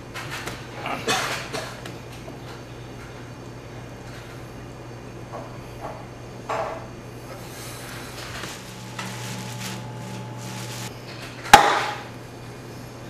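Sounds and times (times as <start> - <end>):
low hum: 7.4 - 10.9
rustling: 7.6 - 10.9.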